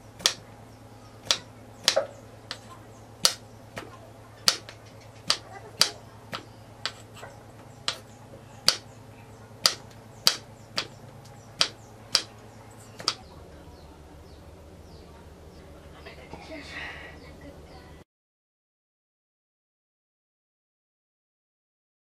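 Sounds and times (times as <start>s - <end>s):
knife tapping wooden cutting board: 0.2s - 0.4s, 1.2s - 7.0s, 7.8s - 8.0s, 8.6s - 8.8s, 9.6s - 11.0s, 11.6s - 12.3s, 13.0s - 13.2s.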